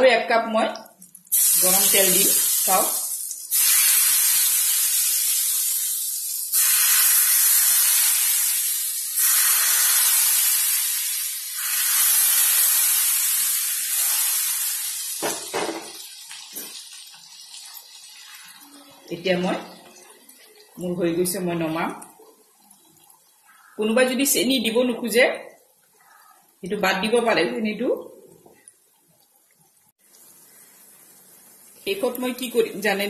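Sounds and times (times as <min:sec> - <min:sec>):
hot oil sizzling in a pan: 0:01.1 - 0:20.6, 0:30.0 - 0:33.0.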